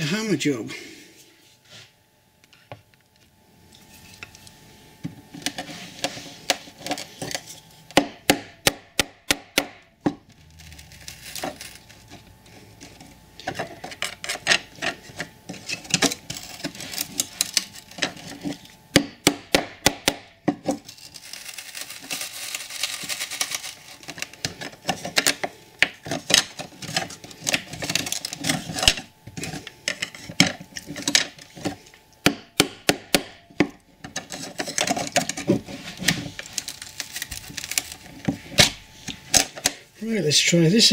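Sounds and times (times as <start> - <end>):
blade scraping against wood: 10.4 - 18.7.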